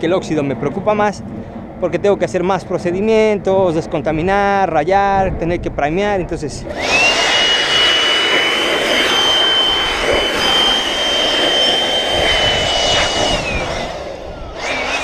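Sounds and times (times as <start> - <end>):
leaf blower whining: 6.6 - 15.0.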